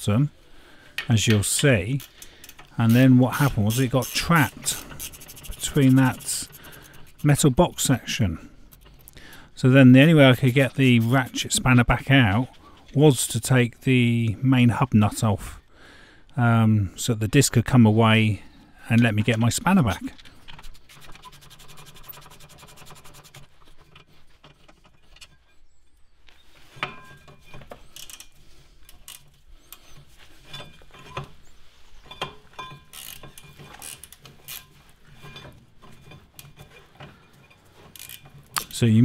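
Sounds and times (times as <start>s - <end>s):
ratchet spanner clicking: 2.0s - 7.4s, 32.9s - 34.6s, 38.0s - 38.7s
metallic clinks and knocks: 26.8s - 31.4s, 32.0s - 38.8s.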